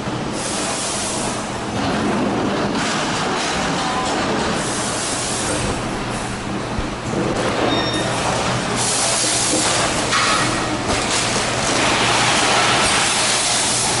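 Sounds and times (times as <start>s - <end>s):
filling machine hum: 0.0s - 14.0s
machine hiss: 0.3s - 1.5s, 4.6s - 6.2s, 8.7s - 10.6s, 11.9s - 14.0s.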